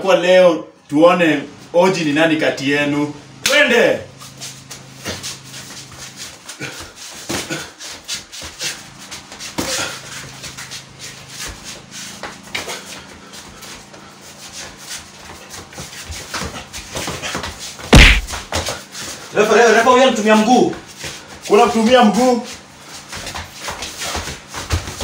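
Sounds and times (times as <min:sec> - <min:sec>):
shuffling feet: 0:04.1 - 0:25.0
boxing glove punches: 0:17.9 - 0:18.5
loud thump: 0:17.9 - 0:18.5.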